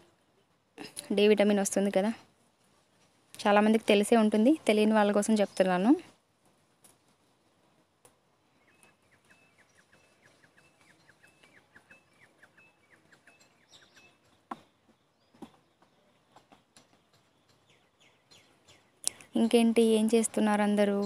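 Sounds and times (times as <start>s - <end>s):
bird chirping: 8.5s - 20.1s.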